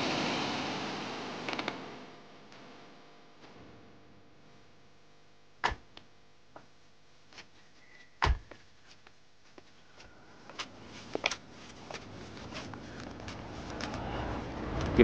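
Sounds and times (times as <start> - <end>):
footsteps on ground: 7.3 - 14.0.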